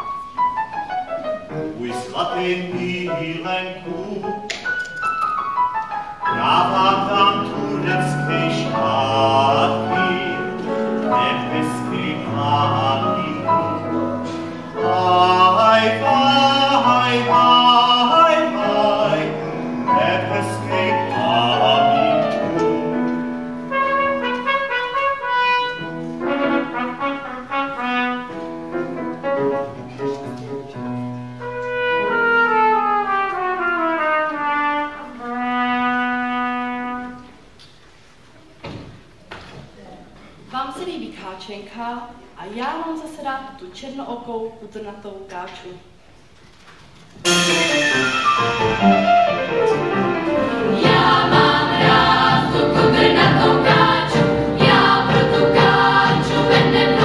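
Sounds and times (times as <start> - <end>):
youth choir singing: 6.3 - 23.0, 48.3 - 57.0.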